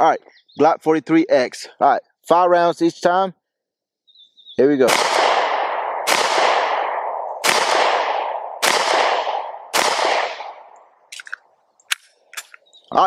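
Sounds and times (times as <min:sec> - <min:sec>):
pistol shots echoing: 0:04.8 - 0:12.6.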